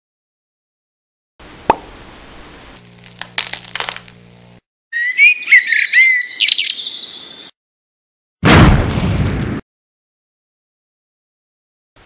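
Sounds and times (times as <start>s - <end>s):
cartoon egg cracking: 3.0s - 4.2s.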